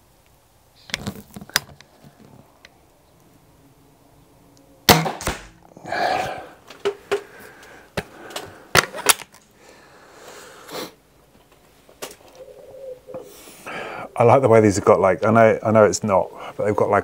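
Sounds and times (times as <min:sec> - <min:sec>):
air rifle firing crack: 0:04.9 - 0:05.6.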